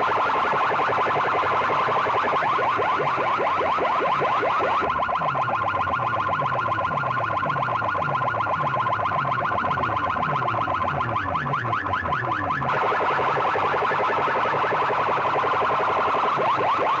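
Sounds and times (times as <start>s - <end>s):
electronic siren warble from loudspeakers: 0.0s - 17.0s.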